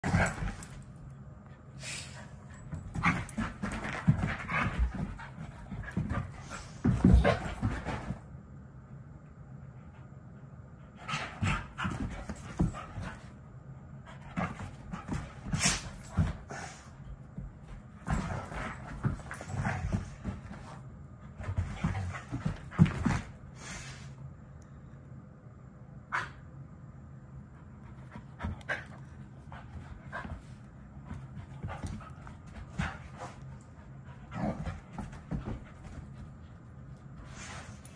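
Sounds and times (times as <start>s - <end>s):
paws thumping on carpet: 0.0s - 0.8s, 2.5s - 8.3s, 11.1s - 13.3s, 14.2s - 16.6s, 17.2s - 23.4s, 28.0s - 37.3s
dogs scuffling: 0.0s - 0.9s, 2.5s - 8.2s, 17.4s - 23.4s, 28.4s - 37.9s
dogs panting: 2.5s - 8.0s.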